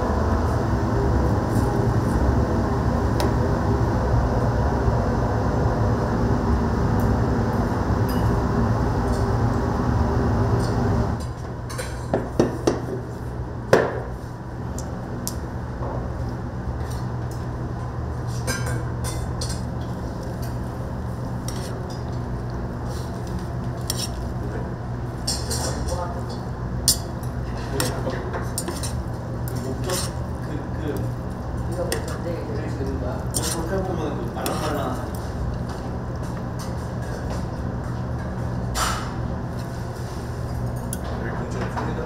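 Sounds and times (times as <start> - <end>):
kitchen rumble: 15.8 - 42.0
dishes and utensils clinking: 25.2 - 30.2.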